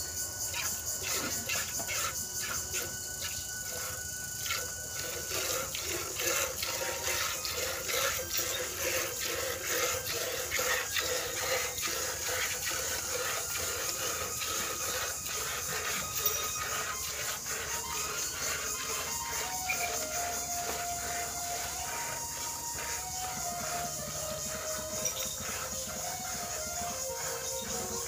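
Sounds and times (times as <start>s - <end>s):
milk squirting into a pail: 0.6s - 21.7s.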